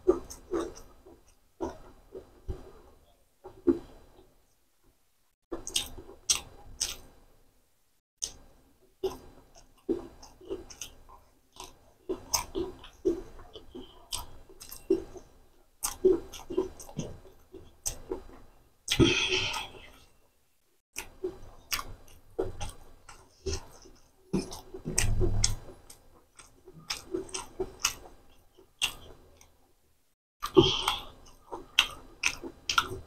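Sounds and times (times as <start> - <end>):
person chewing wet mouth noises: 0.0 - 1.9, 5.6 - 7.2, 9.0 - 20.1, 21.0 - 29.6, 30.4 - 33.0.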